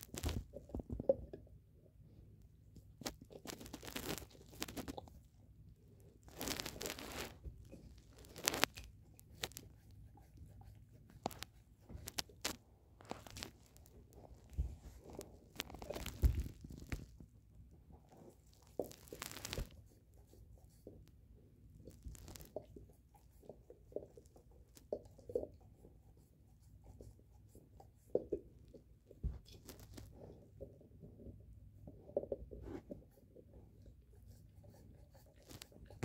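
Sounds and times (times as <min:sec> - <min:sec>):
dog gnawing a bone: 0:06.3 - 0:17.2.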